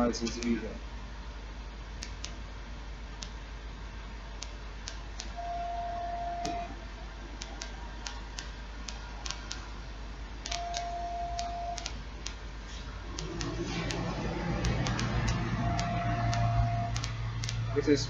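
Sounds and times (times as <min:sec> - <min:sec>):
light ticking clicks: 0:00.2 - 0:00.6, 0:10.4 - 0:12.4, 0:14.6 - 0:17.6
low hum: 0:04.4 - 0:08.2, 0:08.8 - 0:18.0
loudspeaker test tone beep: 0:05.4 - 0:06.8, 0:15.6 - 0:17.0.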